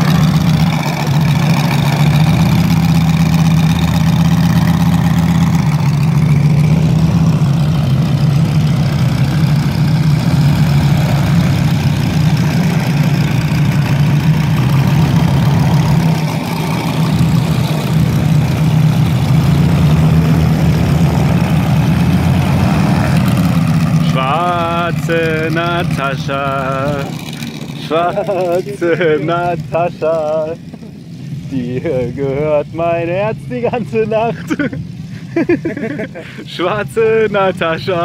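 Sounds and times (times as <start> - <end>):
model plane engines idling: 0.0 - 38.0.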